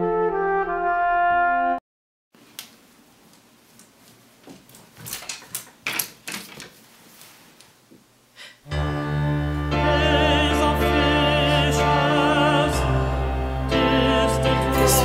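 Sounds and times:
fabric rustling: 2.4s - 8.0s
hangers clicking along closet rod: 4.6s - 6.7s
vibrato singing voice: 8.8s - 15.0s.

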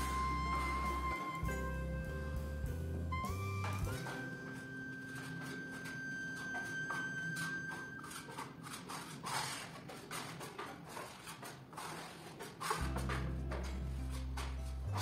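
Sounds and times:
held musical note: 0.0s - 8.3s
trowel scraping plaster: 3.8s - 15.0s.

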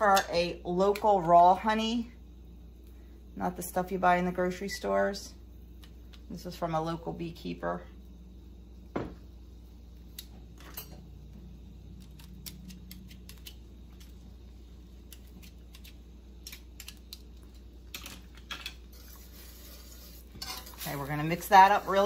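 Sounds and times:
fork scraping a spoon: 18.9s - 20.9s.

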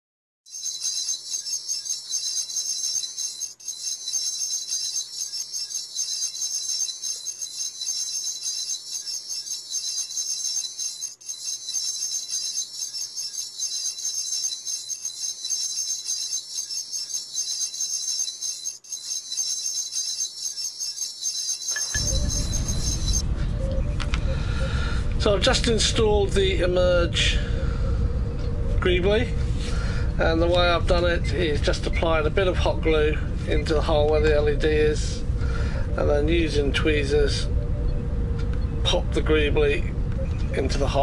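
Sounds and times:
high glittering intro music: 21.8s - 25.4s.

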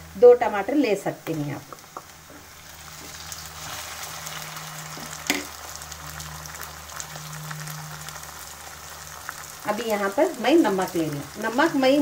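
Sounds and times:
vegetables sizzling in hot oil: 0.0s - 12.0s.

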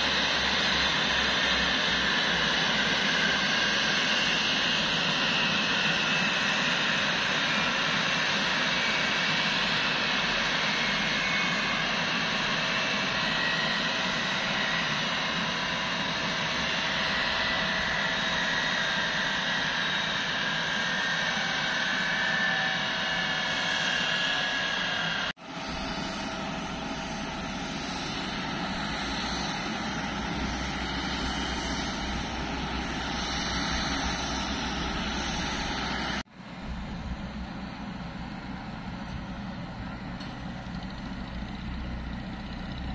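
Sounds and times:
jet engines roaring and whining: 0.0s - 42.9s
deep engine rumble: 26.6s - 42.9s.

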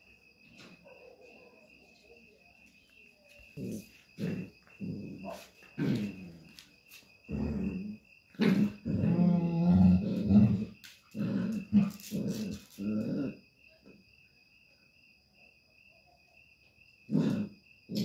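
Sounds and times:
crickets chirping: 0.0s - 18.0s
dogs growling: 3.5s - 6.6s, 7.3s - 13.4s, 17.1s - 18.0s.

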